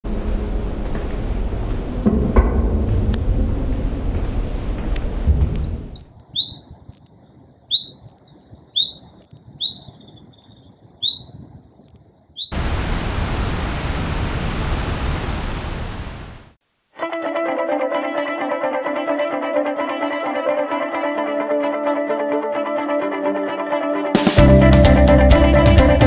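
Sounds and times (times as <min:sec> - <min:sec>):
low rumbling noise: 0:00.0 - 0:07.7, 0:12.4 - 0:16.6
bird chirping: 0:05.3 - 0:12.7
river water rushing: 0:12.6 - 0:16.6.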